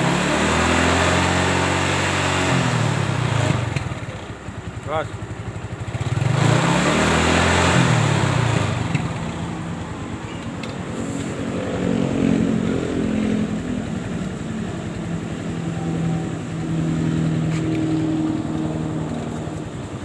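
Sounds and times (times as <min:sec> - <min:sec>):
vehicle engine running: 0:00.0 - 0:20.0.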